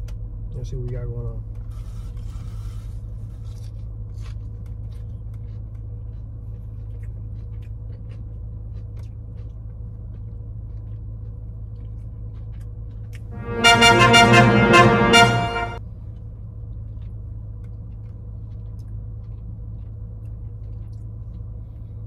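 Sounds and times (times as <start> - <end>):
chewing: 1.6 - 13.3, 16.6 - 22.0.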